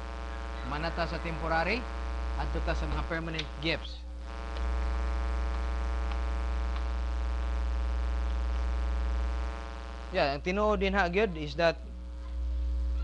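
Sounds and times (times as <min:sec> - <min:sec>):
electrical mains hum: 0:00.0 - 0:13.0
faint ticks: 0:04.5 - 0:07.5.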